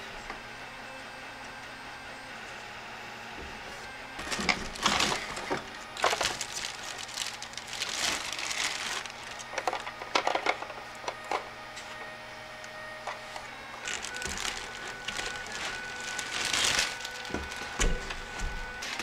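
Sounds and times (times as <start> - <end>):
plastic bag crinkling: 4.2 - 9.9, 13.6 - 19.0.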